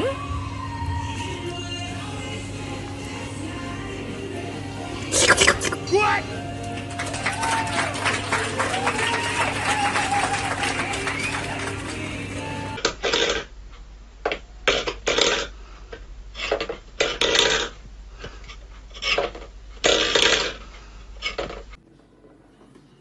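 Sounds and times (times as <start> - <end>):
metal bowl scraping on wooden floor: 16.4 - 17.8, 18.9 - 20.6.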